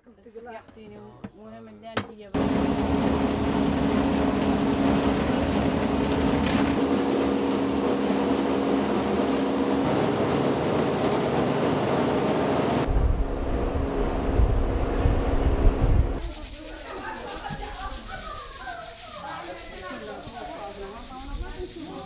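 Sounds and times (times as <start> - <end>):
plastic shredder running: 2.4 - 16.0.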